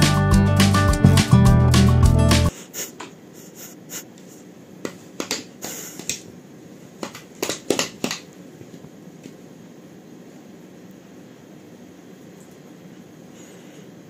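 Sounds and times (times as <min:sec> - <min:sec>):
guitar music: 0:00.0 - 0:02.5
dog tail tapping wooden floor: 0:07.0 - 0:08.3.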